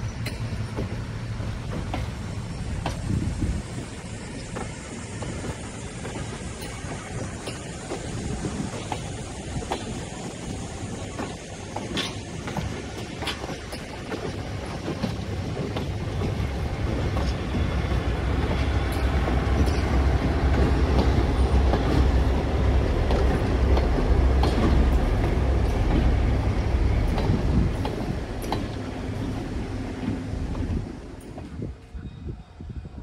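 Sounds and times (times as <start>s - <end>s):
wheels clicking over rail joints: 0.0s - 31.9s.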